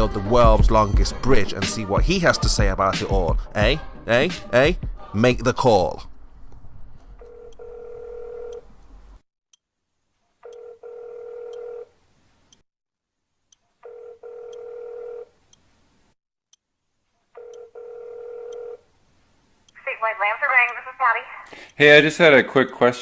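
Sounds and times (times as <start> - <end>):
phone ringback tone: 7.2 - 8.7, 10.4 - 11.9, 13.8 - 15.3, 17.4 - 18.8.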